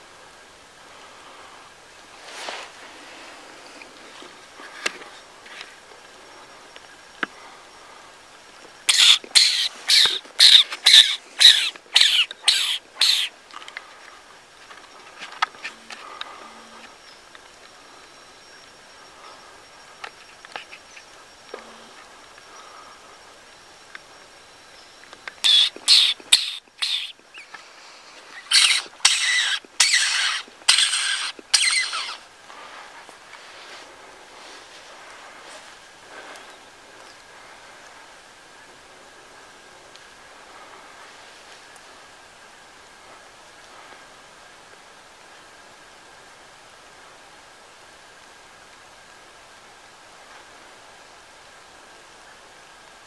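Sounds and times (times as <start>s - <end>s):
high squeaks from mouth: 8.9s - 13.3s, 25.4s - 27.5s, 28.4s - 32.2s
animal sharp harsh calls: 8.9s - 13.4s, 25.4s - 27.6s, 28.3s - 32.3s.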